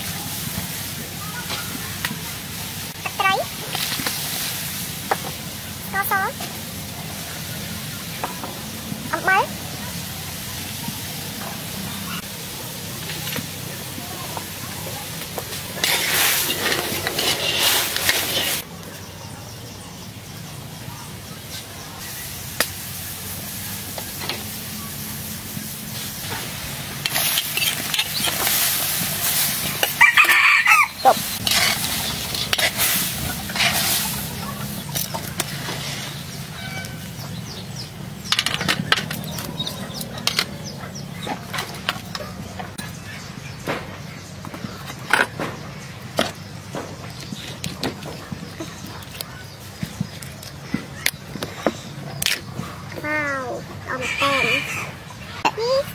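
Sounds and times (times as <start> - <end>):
broth boiling with steam hiss: 0.0 - 18.7, 21.1 - 38.3
shell and utensils clattering: 15.7 - 18.6, 27.0 - 30.4
chickens clucking: 26.0 - 55.8.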